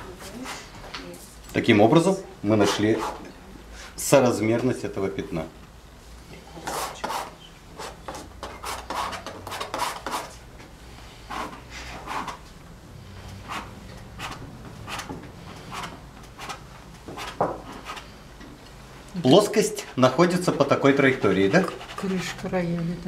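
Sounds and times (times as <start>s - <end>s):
brush scrubbing on canvas: 21.0s - 22.5s.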